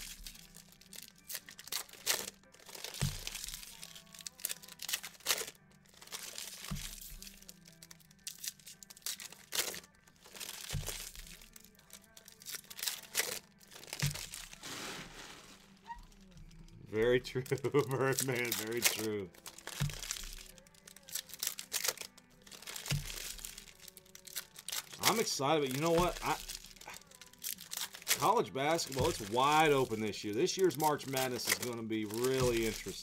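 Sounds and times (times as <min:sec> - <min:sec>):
plastic packaging crinkling: 0:00.0 - 0:33.0
quiet music with slow beat: 0:00.0 - 0:33.0.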